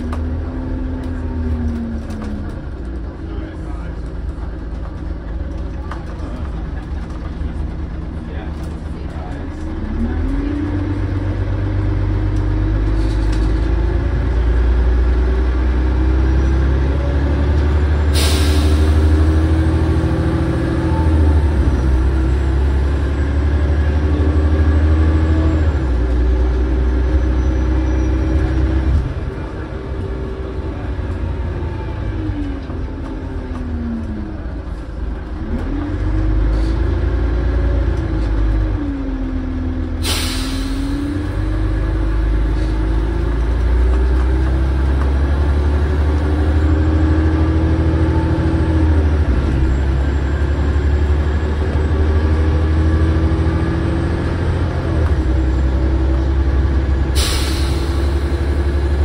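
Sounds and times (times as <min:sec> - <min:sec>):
bus diesel engine: 0:00.0 - 0:59.0
sharp hiss of air: 0:40.0 - 0:41.0, 0:57.2 - 0:58.4.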